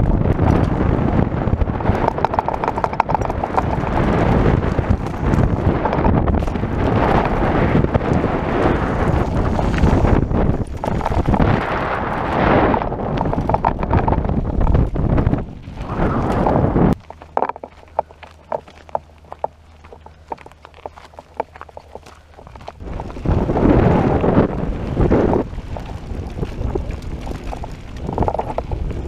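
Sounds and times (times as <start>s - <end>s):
mountain bike knocks and rattles: 0.0s - 15.4s
tyre noise on gravel: 0.0s - 29.0s
wind buffeting microphone: 0.0s - 29.0s.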